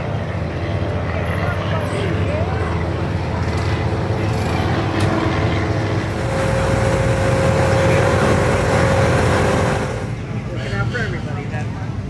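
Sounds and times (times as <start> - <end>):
steady higher hum: 2.0 - 10.6
car engine rumbling: 3.0 - 10.4.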